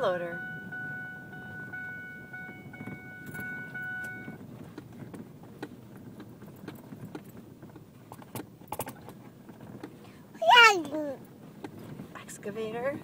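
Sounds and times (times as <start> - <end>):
vehicle cabin rumble: 0.0 - 13.0.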